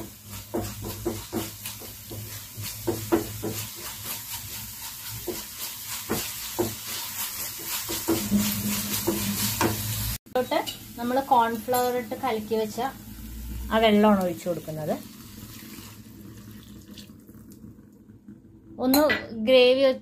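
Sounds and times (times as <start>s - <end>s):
wooden spatula scraping a pan: 0.0s - 10.2s
light sizzle: 0.0s - 20.0s.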